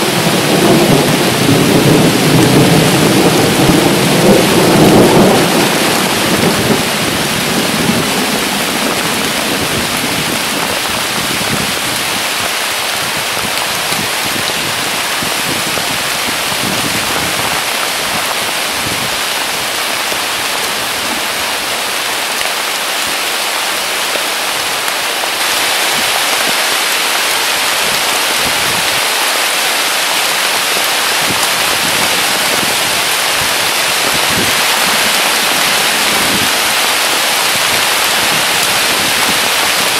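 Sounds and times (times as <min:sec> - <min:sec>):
low rumble of thunder: 0:00.0 - 0:11.8
heavy rain hissing: 0:00.0 - 0:39.9.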